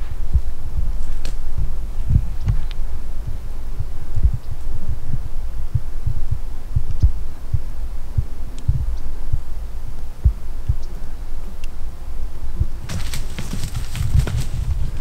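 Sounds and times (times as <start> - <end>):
low thumps on microphone: 0.0 - 9.5, 12.6 - 15.0
faint high ticks: 5.8 - 12.8.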